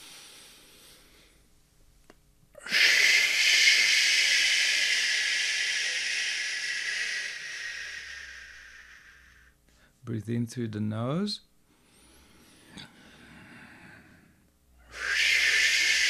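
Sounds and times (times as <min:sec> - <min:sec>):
long shh hiss exhale: 0:00.0 - 0:01.4, 0:02.6 - 0:09.9, 0:11.8 - 0:16.0
man breathing in through nose: 0:02.6 - 0:10.0, 0:11.7 - 0:16.0.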